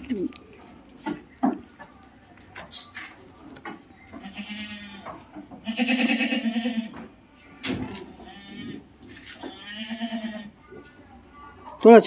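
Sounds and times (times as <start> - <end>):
goat bleating: 4.2 - 7.0, 8.1 - 10.6.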